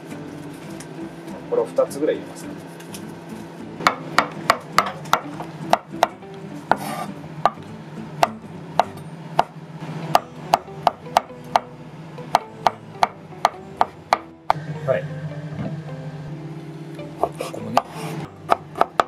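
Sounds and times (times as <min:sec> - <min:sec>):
knife chopping on wooden board: 0:03.8 - 0:07.6, 0:08.2 - 0:09.5, 0:12.3 - 0:14.3, 0:17.2 - 0:19.0.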